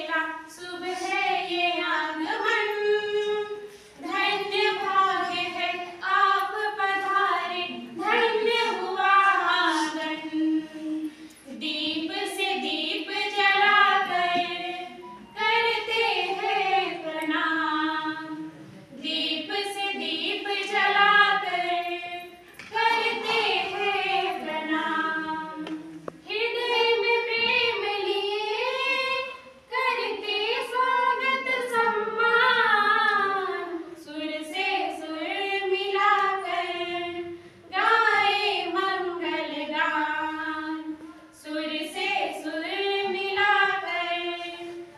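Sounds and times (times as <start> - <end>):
women singing together: 0.0 - 44.9.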